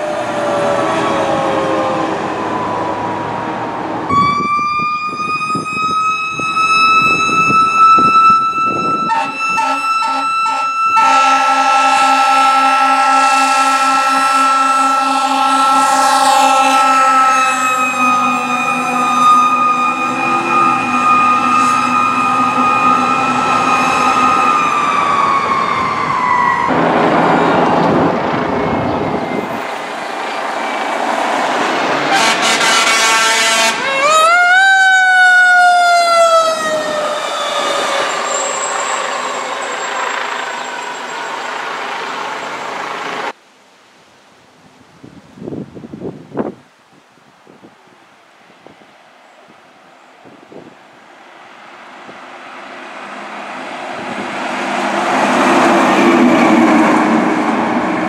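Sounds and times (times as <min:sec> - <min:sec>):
fire truck siren: 0:00.0 - 0:43.4, 0:51.4 - 0:58.0
short horn blast: 0:08.7 - 0:19.4, 0:32.1 - 0:33.9.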